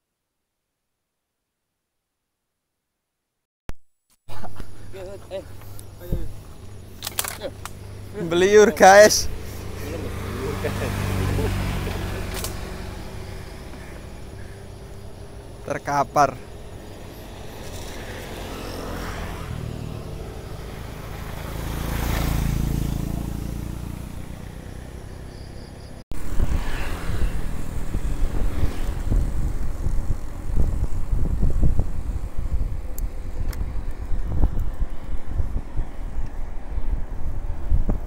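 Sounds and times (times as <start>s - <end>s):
motorcycle passing: 4.3s - 38.0s
wind buffeting microphone: 26.1s - 38.0s.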